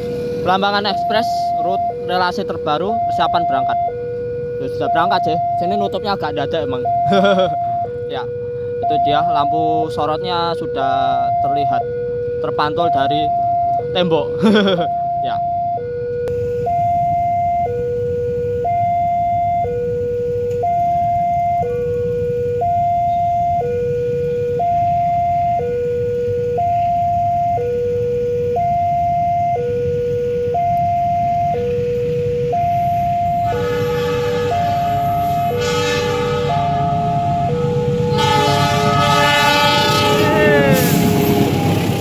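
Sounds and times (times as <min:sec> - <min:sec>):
level crossing two-tone alarm: 0:00.0 - 0:41.8
diesel locomotive horn: 0:33.2 - 0:42.0.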